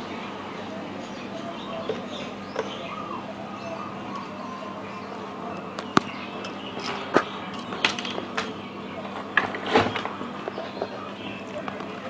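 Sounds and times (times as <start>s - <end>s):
faint chirp: 0.0s - 9.2s
steady background hum: 0.0s - 12.0s.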